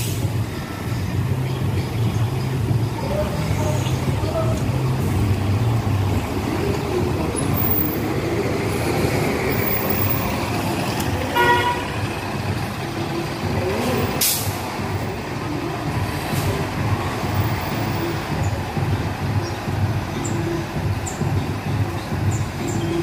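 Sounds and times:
bus engine running: 0:00.0 - 0:23.0
street traffic: 0:00.0 - 0:23.0
vehicle horn toot: 0:11.3 - 0:12.0
sharp hiss: 0:14.2 - 0:14.6.

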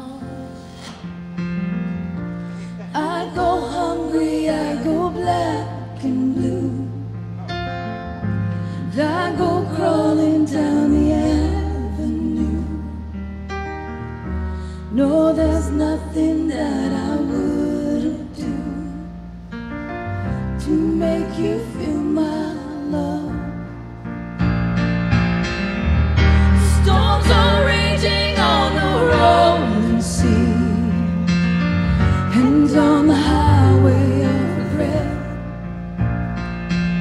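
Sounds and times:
women singing a slow ballad: 0:00.0 - 0:01.2, 0:02.5 - 0:07.4, 0:08.6 - 0:13.2, 0:14.7 - 0:19.4, 0:20.3 - 0:23.8, 0:26.4 - 0:35.6
piano accompaniment: 0:00.0 - 0:37.0.

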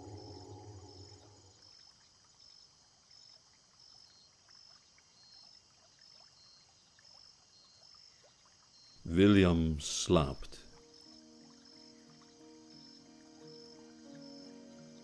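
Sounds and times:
music tail: 0:00.0 - 0:01.4.

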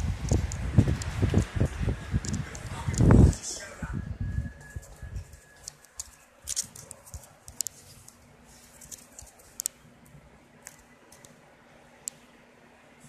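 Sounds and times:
phone handling clicks and rustles: 0:05.6 - 0:07.9.

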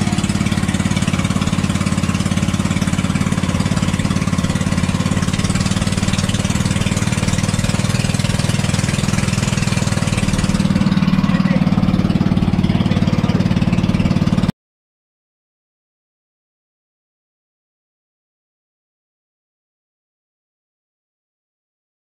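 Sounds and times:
boat engine drone: 0:00.0 - 0:14.5.

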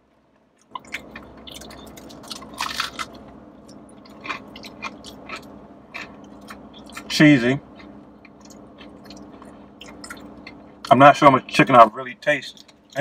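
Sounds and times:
person chewing crispy food: 0:00.6 - 0:10.9, 0:12.5 - 0:13.0.

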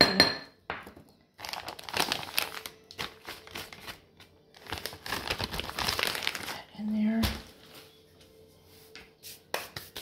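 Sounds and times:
bag crinkling: 0:01.4 - 0:06.9.

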